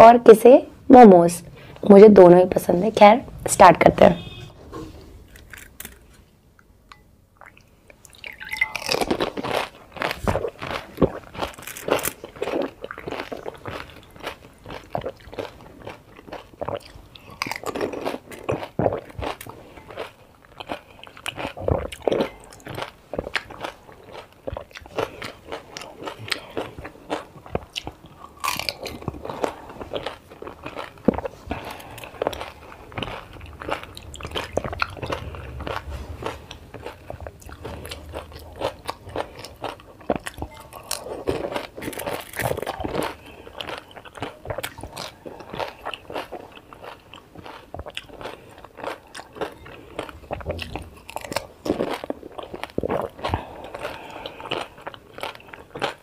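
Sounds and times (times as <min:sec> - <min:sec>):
person chewing crunchy food: 0:05.1 - 0:06.2, 0:07.4 - 0:56.0.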